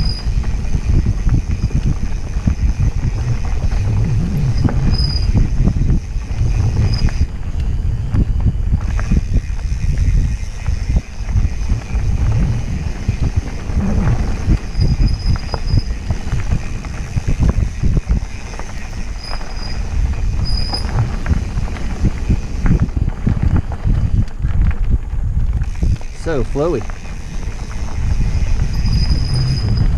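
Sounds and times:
bike knocking and rattling: 0.0 - 29.9
wind and tyres on trail: 0.0 - 29.9
high squeaks: 3.1 - 5.5, 10.3 - 16.6, 28.4 - 29.9.

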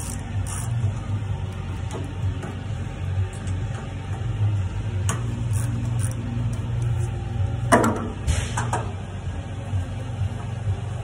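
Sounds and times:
steady low hum: 0.0 - 11.0
brief metal scrape: 8.2 - 8.7.

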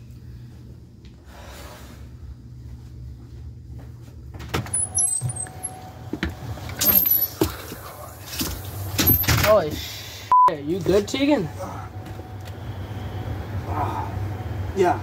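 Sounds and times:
low steady hum: 0.0 - 15.0
footsteps and bumps: 3.6 - 5.5
door squeaking: 4.6 - 5.8.

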